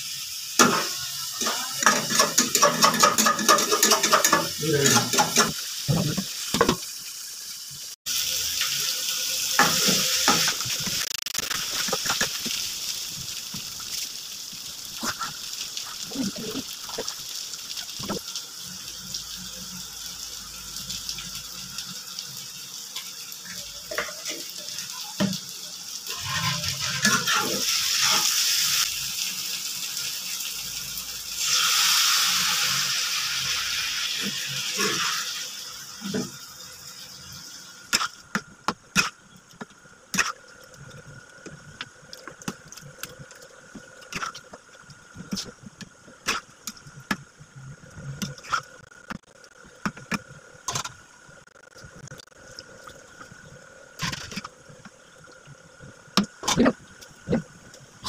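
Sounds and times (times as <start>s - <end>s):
water sizzling in hot pan: 0.0s - 58.0s
spatula scraping and knocking pan: 0.6s - 6.8s.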